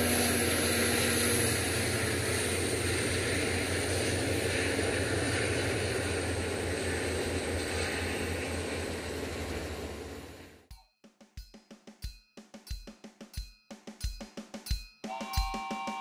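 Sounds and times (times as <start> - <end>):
train wheels rumbling on rails: 0.0 - 10.7.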